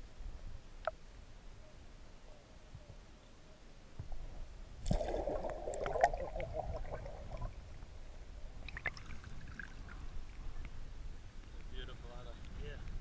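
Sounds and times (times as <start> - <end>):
water gurgling and sloshing: 4.8 - 10.6.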